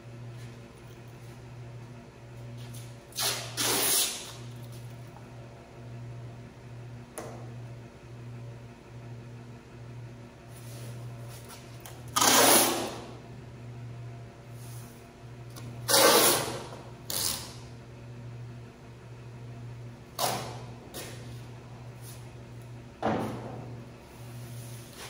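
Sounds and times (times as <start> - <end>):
steady low hum: 0.0 - 25.0
masking tape tearing off roll: 3.1 - 4.5, 12.1 - 13.0, 15.9 - 17.6, 20.2 - 20.7.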